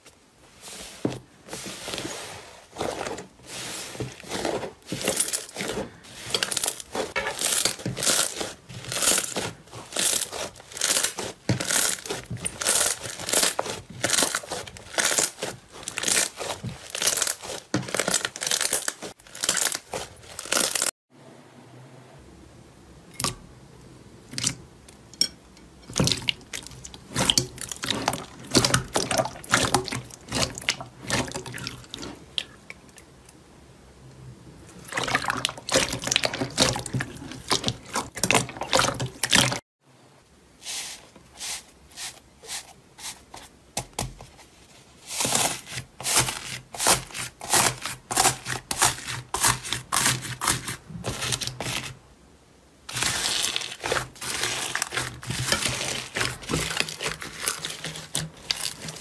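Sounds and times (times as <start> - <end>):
slime squishing: 0.6 - 20.9, 25.9 - 33.0, 34.7 - 39.6, 45.0 - 52.0, 52.9 - 59.0.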